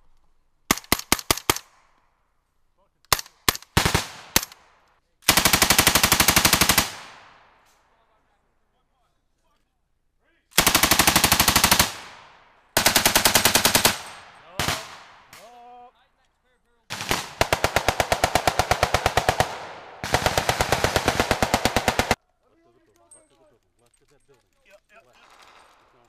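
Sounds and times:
machine gun firing in bursts: 3.1 - 4.6, 5.2 - 7.3, 10.6 - 15.4, 16.9 - 22.2.

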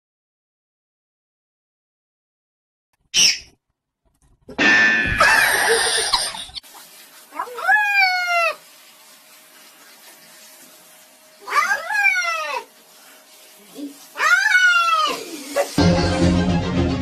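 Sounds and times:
cat yowling: 7.3 - 8.6, 11.4 - 12.7, 14.1 - 15.8.

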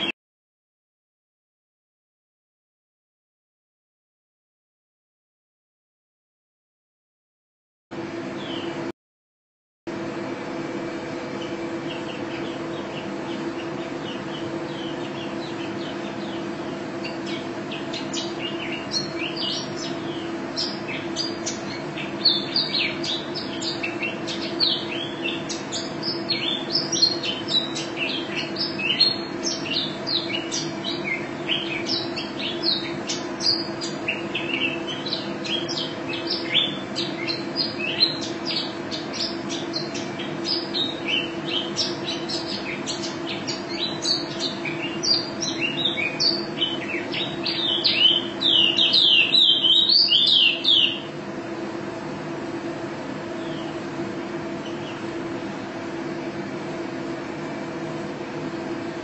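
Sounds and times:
bird singing high chirps and trills: 8.2 - 8.9, 11.0 - 51.6, 53.3 - 55.3.

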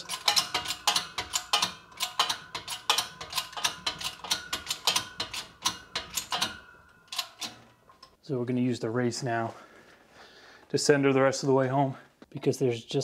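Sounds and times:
shop press mechanical clicks: 0.0 - 7.7.

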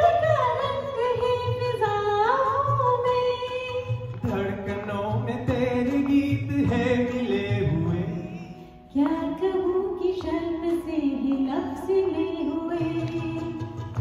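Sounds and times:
woman singing: 0.0 - 4.4, 8.9 - 14.0
violin: 0.0 - 14.0.

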